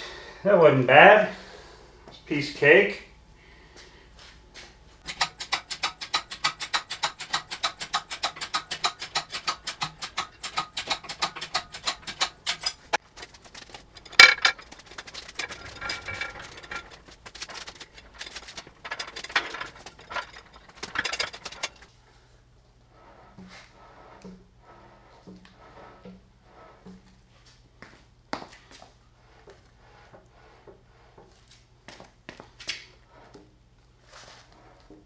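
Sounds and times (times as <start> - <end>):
hoist ratchet clicking: 5.0 - 21.8
soft metal clunks and scrapes: 9.7 - 22.0.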